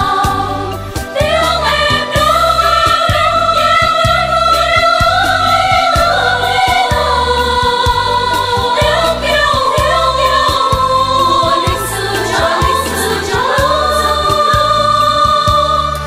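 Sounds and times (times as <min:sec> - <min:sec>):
song with held sung notes: 0:00.0 - 0:16.0.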